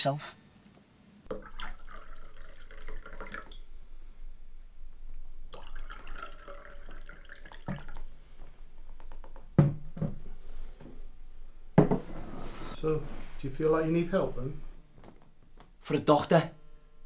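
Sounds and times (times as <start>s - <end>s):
water pouring into glass: 1.3s - 3.9s, 5.4s - 8.2s
glass set down on wooden table: 11.8s - 12.2s.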